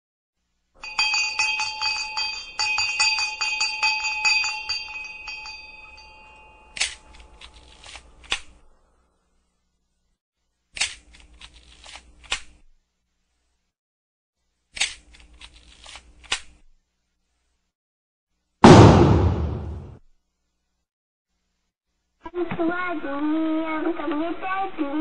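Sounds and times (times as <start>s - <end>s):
high metallic ringing: 0.8s - 7.3s.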